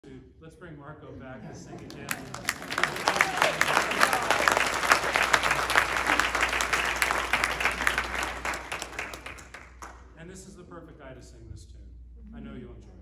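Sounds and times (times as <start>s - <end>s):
audience applauding: 1.8s - 10.0s.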